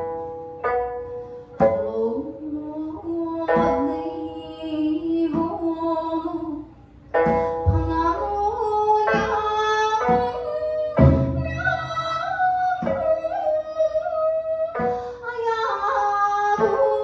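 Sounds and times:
plucked lute: 0:00.0 - 0:17.0
woman singing folk song: 0:01.6 - 0:06.7, 0:07.3 - 0:17.0
low thump: 0:07.2 - 0:08.3.

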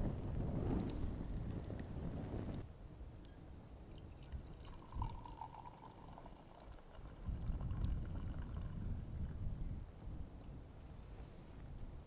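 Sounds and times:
tea pouring into a mug: 0:03.9 - 0:08.9.

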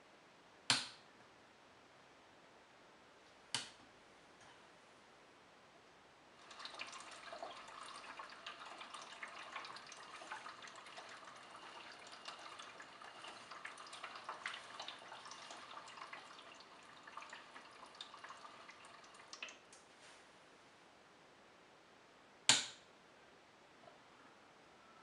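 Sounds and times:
water sloshing in toy washing machine: 0:06.4 - 0:19.5.

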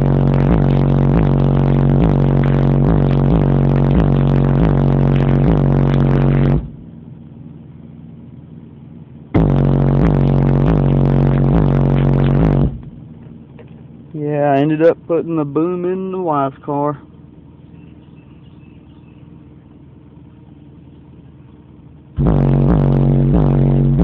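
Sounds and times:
bass-heavy music from car stereo: 0:00.0 - 0:07.0, 0:09.2 - 0:13.5, 0:22.0 - 0:24.0.

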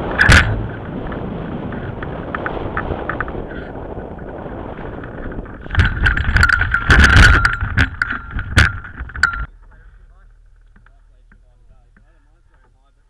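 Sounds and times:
frame knocks and rattles: 0:05.1 - 0:09.8.

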